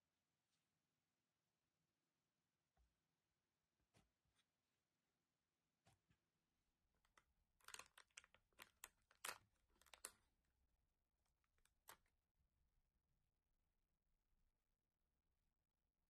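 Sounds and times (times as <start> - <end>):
foil seal crinkling and tearing: 7.1 - 10.3, 11.4 - 12.1.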